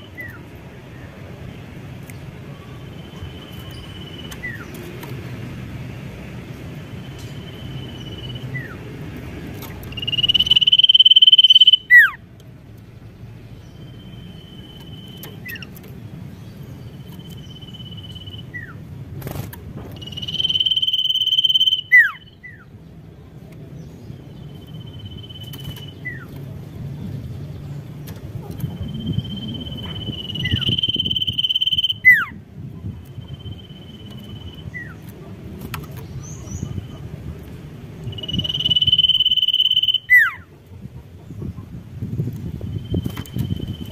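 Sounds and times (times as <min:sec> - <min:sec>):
bird whistling song: 0:07.0 - 0:08.8, 0:09.8 - 0:12.2, 0:13.6 - 0:15.7, 0:16.9 - 0:18.8, 0:19.9 - 0:22.7, 0:24.4 - 0:26.3, 0:28.7 - 0:32.4, 0:33.1 - 0:35.0, 0:38.1 - 0:40.4.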